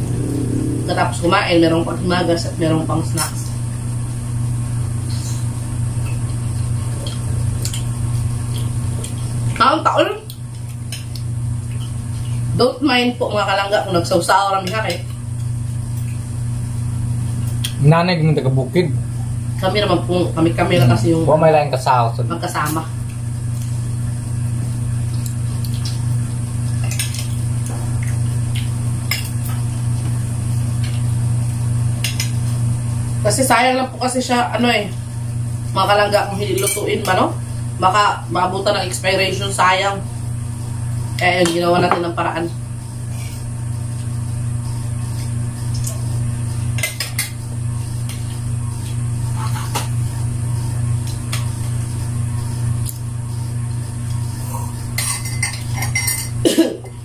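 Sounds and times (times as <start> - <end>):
loud steady low hum: 0.0 - 57.0
cutlery clinking against plates: 55.0 - 56.4.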